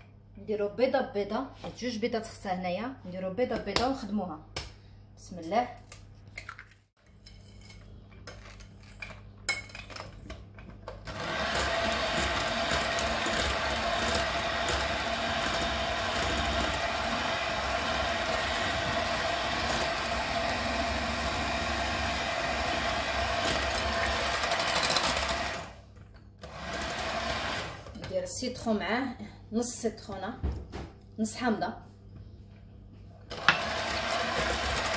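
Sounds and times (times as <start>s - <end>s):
electric mixer whisking batter: 11.0s - 25.8s, 26.4s - 28.0s, 33.3s - 34.9s.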